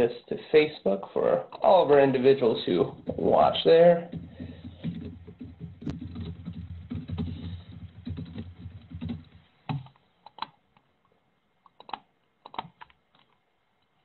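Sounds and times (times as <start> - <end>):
typing on laptop keyboard: 2.8 - 10.6, 11.6 - 13.4
computer mouse clicks: 4.9 - 10.9, 11.6 - 13.9.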